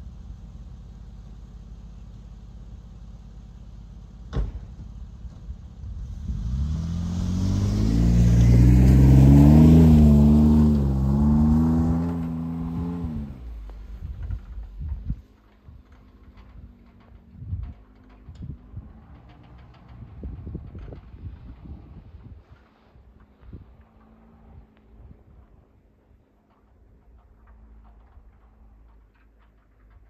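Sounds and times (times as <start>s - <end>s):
car engine revving: 5.9s - 14.8s.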